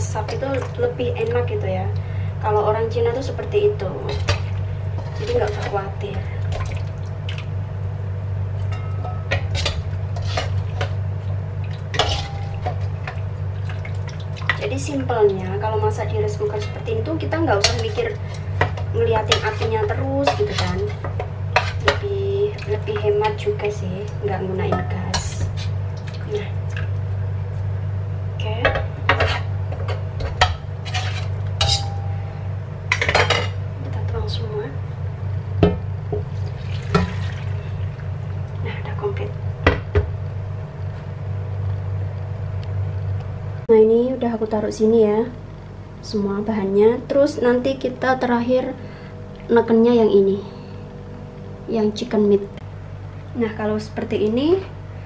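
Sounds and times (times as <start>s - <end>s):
low hum: 0.0s - 55.0s
metal utensils scraping a wok: 5.0s - 5.8s, 8.8s - 10.9s, 12.0s - 12.6s, 30.8s - 32.0s.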